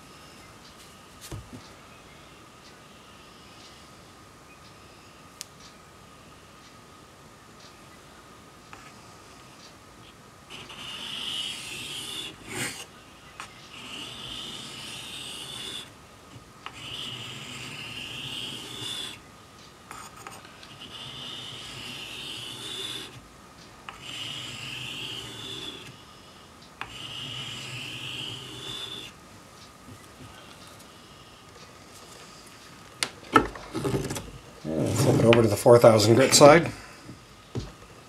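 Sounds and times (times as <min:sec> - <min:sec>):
steel rubbing on sharpening stone: 0:10.5 - 0:12.8, 0:13.7 - 0:15.9, 0:16.7 - 0:19.2, 0:20.7 - 0:23.2, 0:23.9 - 0:25.9, 0:26.8 - 0:29.1.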